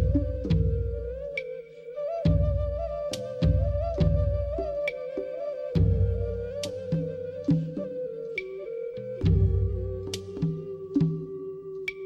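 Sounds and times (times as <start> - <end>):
deep slow drum beats: 0.0 - 1.4, 2.3 - 4.9, 5.8 - 8.0, 9.1 - 11.5.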